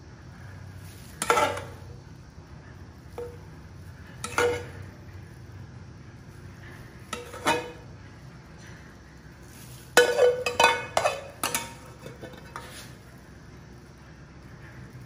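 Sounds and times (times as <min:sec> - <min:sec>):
metal spoon clanking on a steel pot: 0:01.2 - 0:01.9, 0:03.1 - 0:03.5, 0:04.2 - 0:04.9, 0:07.1 - 0:07.9, 0:10.0 - 0:12.8.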